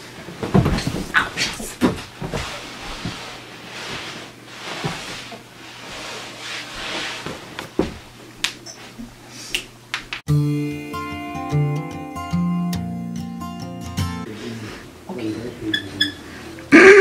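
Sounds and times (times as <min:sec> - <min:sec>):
clothes rustling on carpet: 0:00.2 - 0:08.2.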